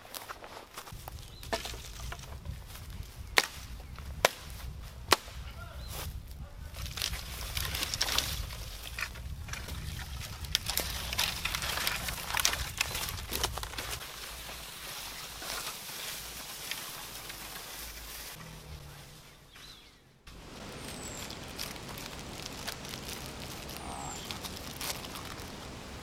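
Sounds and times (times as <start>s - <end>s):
dry twigs snapping: 0.9s - 5.4s, 6.7s - 18.4s, 20.4s - 26.0s
axe chopping wood: 3.4s - 5.4s.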